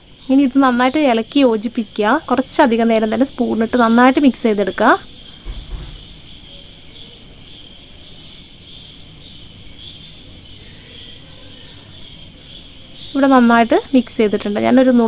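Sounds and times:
crickets chirring: 0.0s - 15.0s
low thump: 5.4s - 6.3s.

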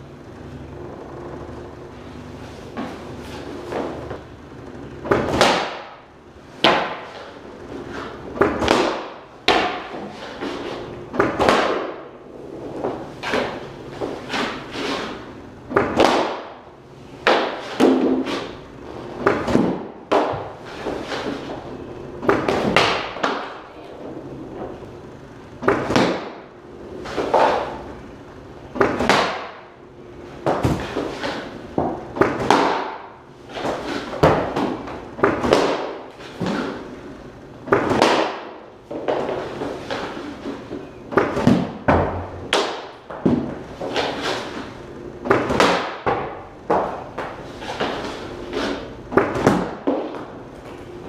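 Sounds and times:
pucks striking goalie pads: 5.0s - 23.7s, 25.6s - 27.9s, 28.7s - 37.0s, 37.6s - 50.8s
pucks dropping on ice: 11.2s - 12.0s, 30.4s - 36.7s, 37.7s - 40.0s, 42.5s - 44.2s.

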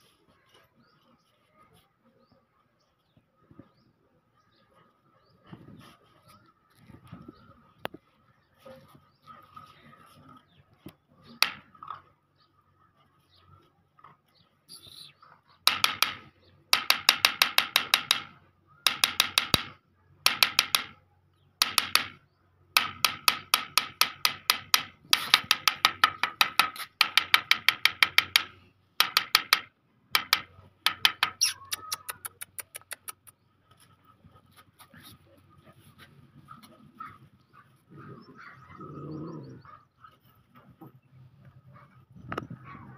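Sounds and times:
rapid sharp taps: 15.7s - 18.3s, 18.9s - 21.0s, 21.6s - 22.2s, 22.8s - 33.3s.

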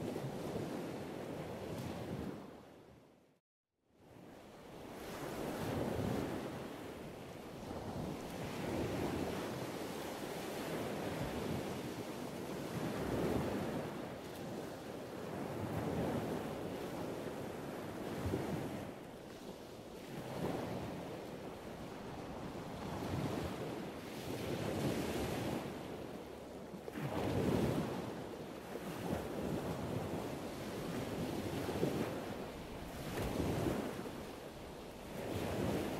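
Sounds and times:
wind buffeting microphone: 26.9s - 35.9s.

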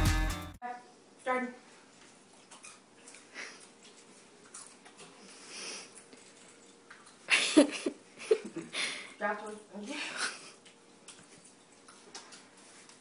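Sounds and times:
person breathing and sniffing: 5.2s - 6.0s.

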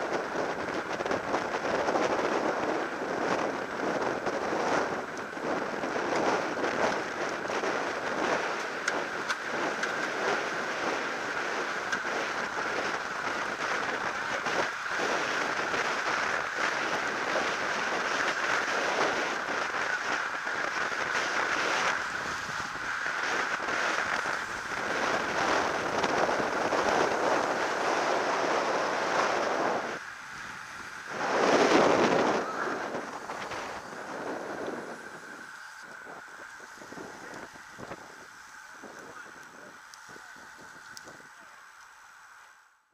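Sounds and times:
wind rushing over microphone: 0.0s - 41.6s
tyre and road noise: 0.0s - 42.5s.

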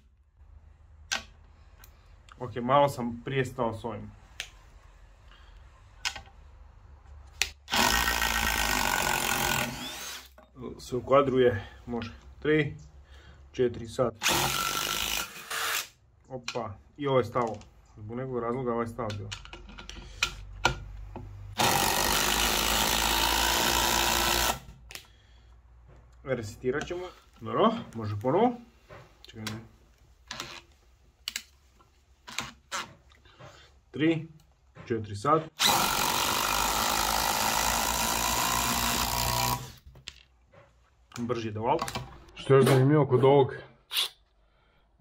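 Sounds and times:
impact driver driving screw into wood: 7.4s - 10.4s, 14.2s - 16.0s, 21.6s - 24.8s, 35.6s - 39.9s.

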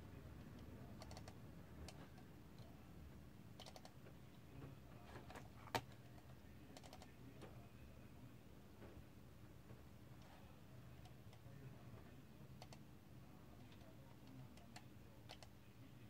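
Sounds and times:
computer mouse clicks: 0.5s - 2.7s, 3.6s - 4.0s, 5.2s - 7.1s, 12.6s - 12.8s, 13.6s - 15.5s.

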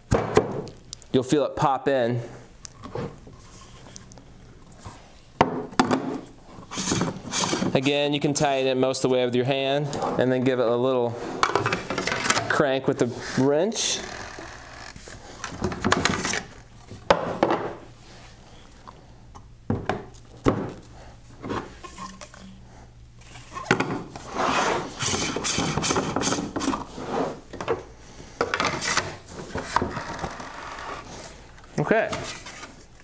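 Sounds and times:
plastic rubbing and scraping: 6.5s - 8.0s, 23.2s - 27.5s.

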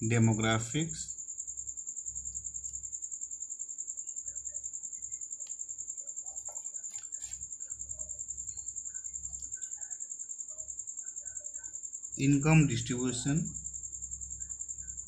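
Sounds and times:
cricket chirping: 0.0s - 15.0s
pen scratching on paper: 6.4s - 7.4s.

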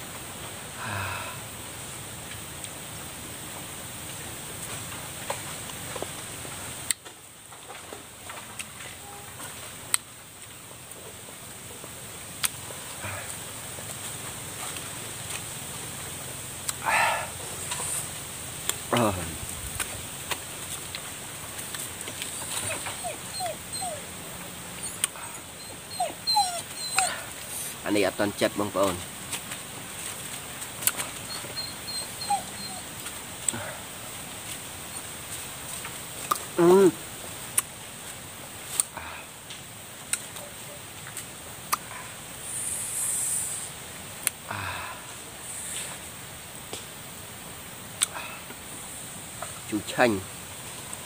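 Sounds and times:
high hiss: 0.0s - 7.4s, 8.8s - 51.0s
dog whimpering: 22.3s - 27.5s, 31.0s - 33.9s
wet mouth clicks and smacks: 40.1s - 40.3s.

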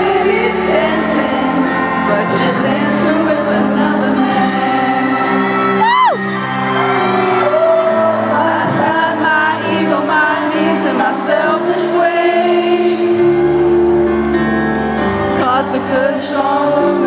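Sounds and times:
keyboard chords: 0.0s - 17.0s
person singing: 0.0s - 17.0s.

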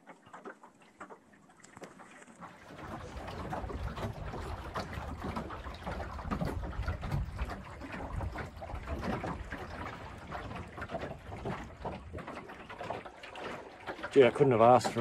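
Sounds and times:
water splashing against a boat hull: 0.0s - 15.0s
wind rumble on microphone: 2.8s - 12.3s.

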